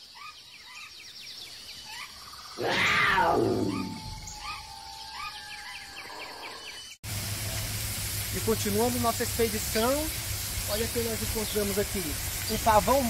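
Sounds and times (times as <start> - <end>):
birds chirping: 0.0 - 13.0
big cat roar: 2.6 - 4.7.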